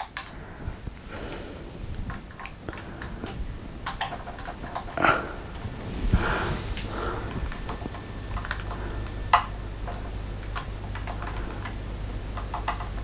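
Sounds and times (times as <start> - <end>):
small clicks and taps of parts: 0.0 - 0.4, 1.9 - 5.7, 6.8 - 13.0
low steady hum: 0.0 - 13.0.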